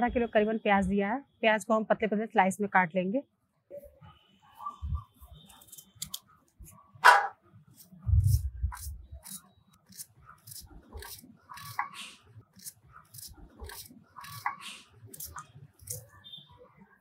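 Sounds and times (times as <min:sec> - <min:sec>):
wind rumble on microphone: 0:04.8 - 0:05.1, 0:08.0 - 0:09.1
knife slicing onion: 0:07.8 - 0:11.9, 0:12.5 - 0:14.6.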